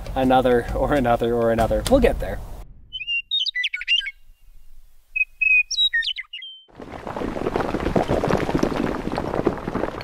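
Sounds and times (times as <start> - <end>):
bird chirps and trills: 2.9 - 6.7
crumbling stone crackling: 6.7 - 10.0.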